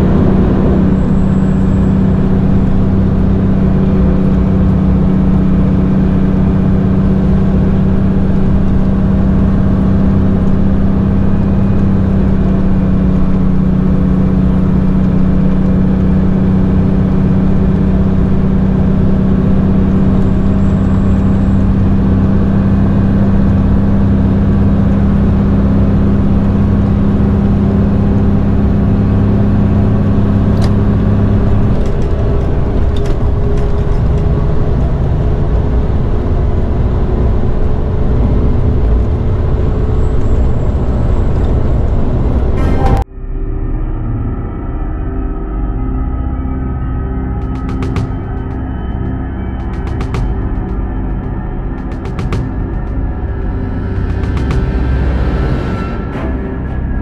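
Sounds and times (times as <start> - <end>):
truck diesel engine running: 0.0 - 43.0, 47.3 - 57.0
tyre and road noise: 47.4 - 57.0.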